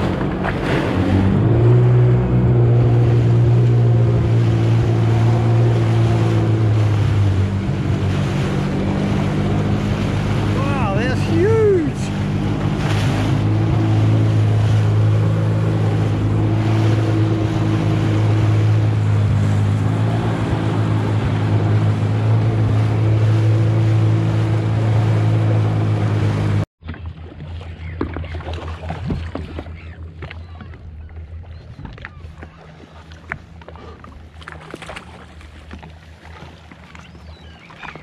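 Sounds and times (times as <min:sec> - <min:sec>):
jet ski engine running: 0:00.0 - 0:38.0.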